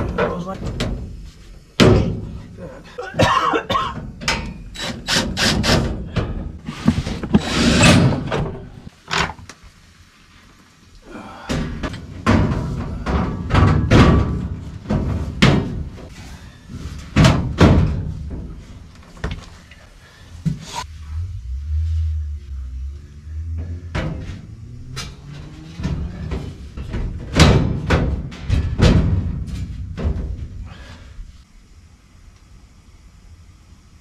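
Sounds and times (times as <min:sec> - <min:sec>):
thin metal panels knocking and rattling: 0:11.9 - 0:16.1, 0:16.7 - 0:19.4, 0:23.9 - 0:30.6.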